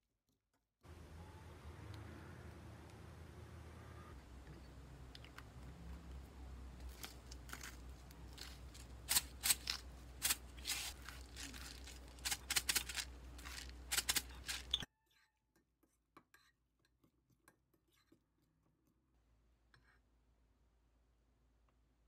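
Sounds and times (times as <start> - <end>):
pepper grinder clicking: 9.1 - 14.8.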